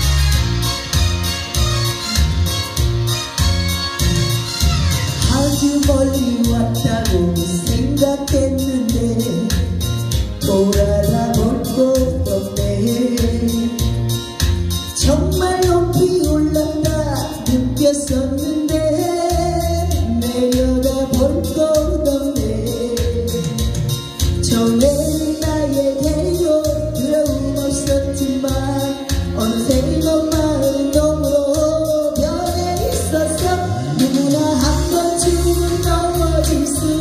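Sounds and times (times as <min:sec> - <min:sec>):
pop backing track with drum beat: 0:00.0 - 0:37.0
woman singing into microphone: 0:05.2 - 0:09.8, 0:10.4 - 0:14.0, 0:15.0 - 0:23.8, 0:24.4 - 0:37.0.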